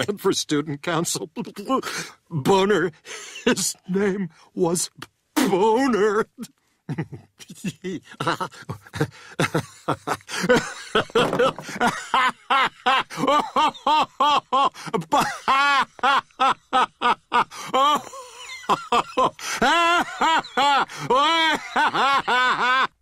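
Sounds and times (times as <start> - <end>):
man laughing heartily: 6.9 - 23.0.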